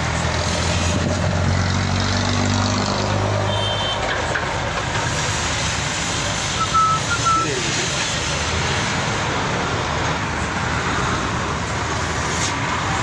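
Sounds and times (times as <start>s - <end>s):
street traffic: 0.0s - 13.0s
short high beep: 6.6s - 7.6s.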